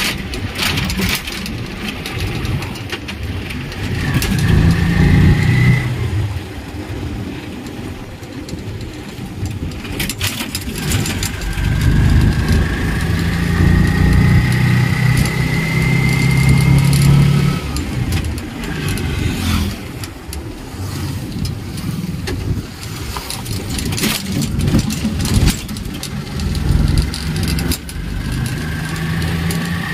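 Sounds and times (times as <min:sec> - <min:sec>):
rattles and knocks: 0:00.0 - 0:05.5, 0:07.6 - 0:29.9
car engine and road noise: 0:00.0 - 0:29.9.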